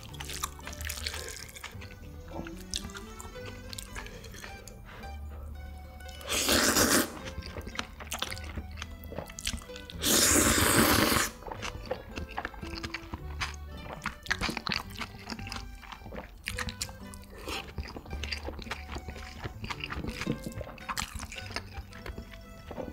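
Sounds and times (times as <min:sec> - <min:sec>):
loud slurp: 0:00.0 - 0:05.2, 0:06.0 - 0:22.9
crunchy chewing: 0:00.0 - 0:22.9
soft background music: 0:00.0 - 0:22.9.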